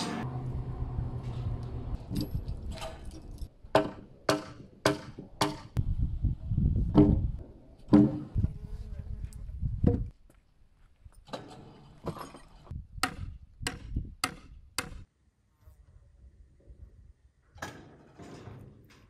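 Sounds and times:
low rumble: 0.2s - 3.5s
wooden knocks on timber beams: 6.9s - 7.3s, 7.9s - 8.3s.

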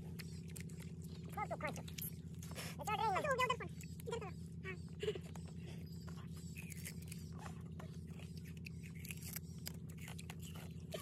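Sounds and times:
sugarcane crunching while chewed: 0.0s - 2.6s, 6.1s - 11.0s
steady low hum: 0.0s - 11.0s.

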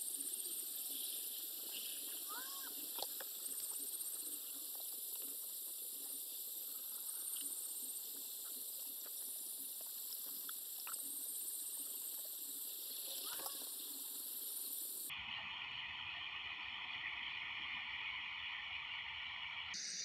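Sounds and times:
pulsed insect trill: 0.0s - 15.1s
steady high hiss: 0.0s - 20.0s.

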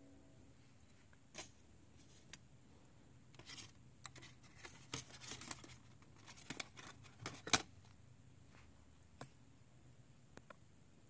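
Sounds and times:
aluminium foil crinkling: 3.4s - 7.7s.

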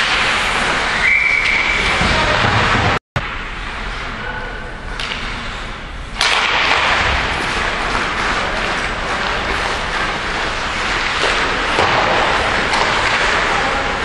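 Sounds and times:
referee's whistle: 1.0s - 2.0s.

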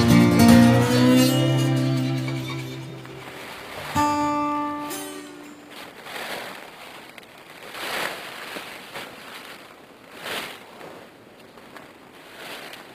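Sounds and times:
dry leaves rustling: 3.0s - 12.9s
plastic tarp rustling: 3.0s - 12.9s.

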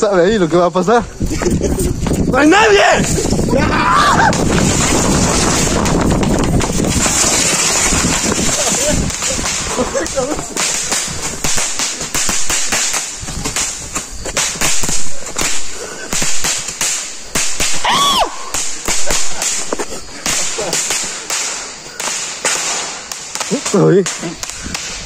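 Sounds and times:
firecrackers crackling and banging: 0.4s - 25.0s.

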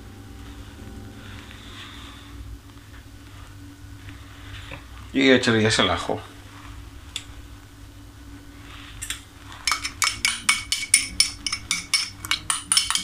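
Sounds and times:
spoon scraping inside glass jar: 9.7s - 13.0s.

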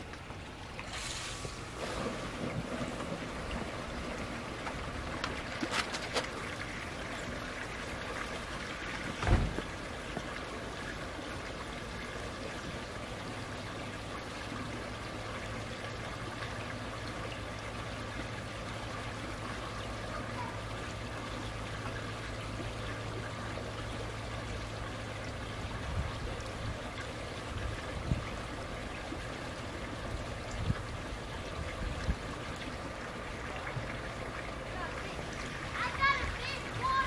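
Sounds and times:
water trickling and running: 0.0s - 37.0s
low thump: 9.2s - 9.7s.

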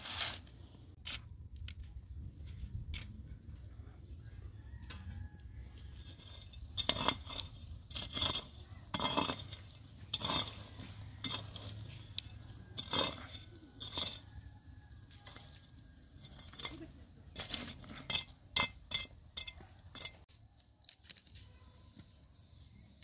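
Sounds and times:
metal scoop scraping charcoal embers: 0.0s - 0.9s, 5.8s - 21.5s.

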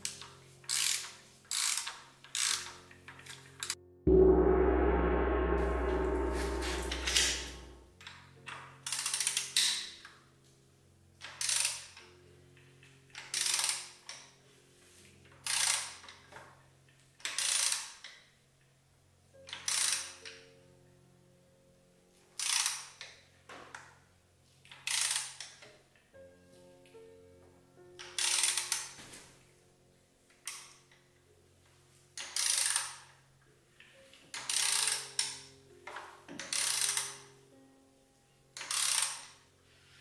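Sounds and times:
deep boom: 4.1s - 7.8s.

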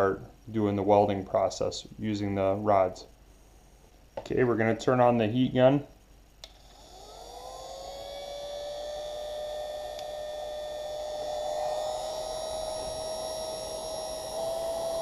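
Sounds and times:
heat gun fan whining and humming: 6.4s - 15.0s.

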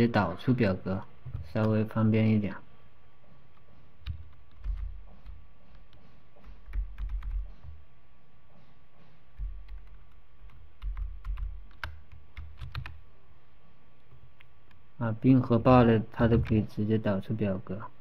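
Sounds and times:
soft low thumps: 3.2s - 11.8s
keyboard key presses: 3.5s - 7.8s, 9.4s - 13.0s.

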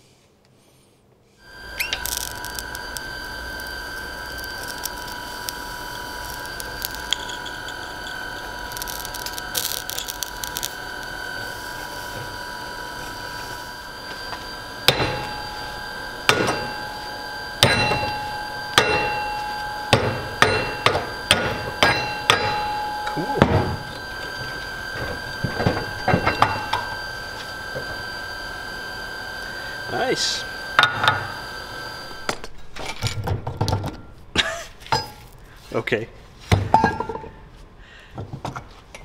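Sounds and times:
steady hum: 1.4s - 32.8s
hammer striking steel: 14.9s - 27.0s.

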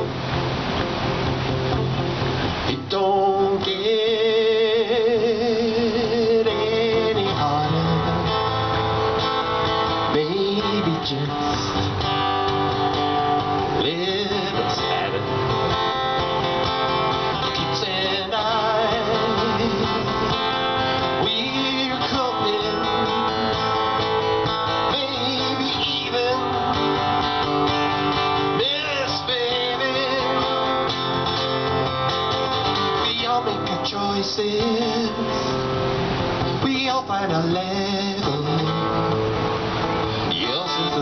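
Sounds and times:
acoustic guitar strumming: 0.0s - 41.0s
man singing: 2.7s - 8.9s, 9.7s - 12.1s, 13.5s - 15.6s, 17.4s - 31.0s, 32.6s - 35.7s, 36.4s - 39.4s, 40.1s - 41.0s.

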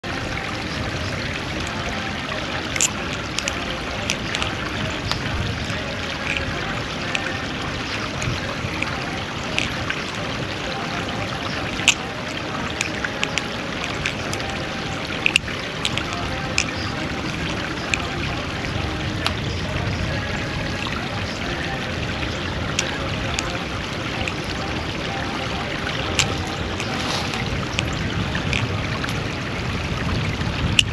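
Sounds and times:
creek water flowing over rocks: 0.0s - 30.9s
butterfly knife metallic clicks: 2.8s - 4.5s, 15.2s - 16.8s.

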